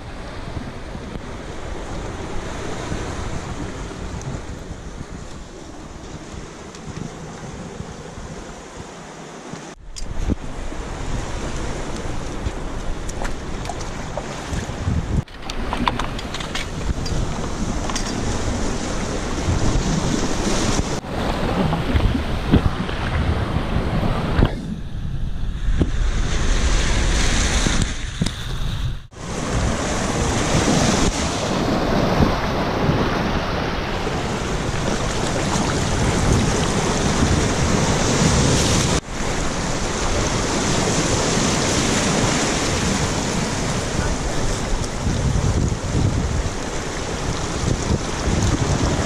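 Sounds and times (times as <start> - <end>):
wind buffeting microphone: 0.0 - 49.0
surf breaking over rocks: 29.1 - 49.0.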